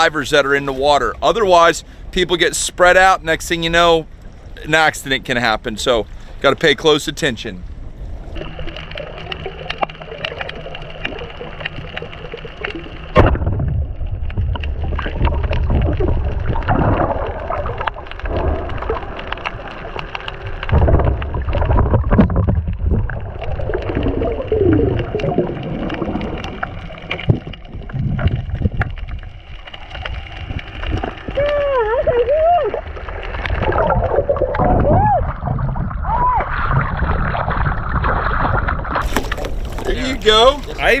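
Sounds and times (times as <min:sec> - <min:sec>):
muffled underwater gurgling: 0:06.1 - 0:41.0
small clicks and crackles: 0:08.1 - 0:34.6.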